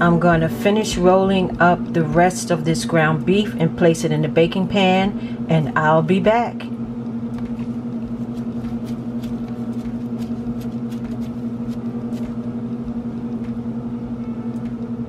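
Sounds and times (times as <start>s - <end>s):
steady low hum: 0.0s - 15.0s
hands patting ground beef: 8.1s - 12.4s.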